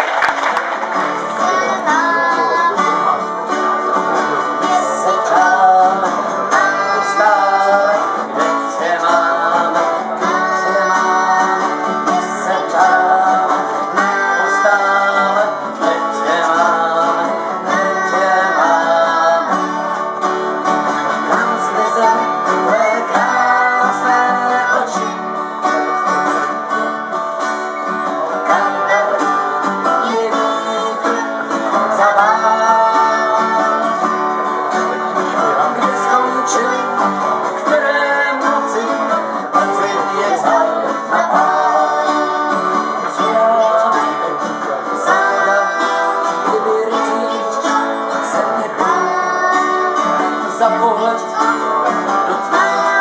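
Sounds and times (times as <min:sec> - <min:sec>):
acoustic guitars strumming: 0:00.0 - 0:53.0
man and boy singing: 0:01.3 - 0:20.0, 0:20.8 - 0:26.6, 0:28.0 - 0:53.0.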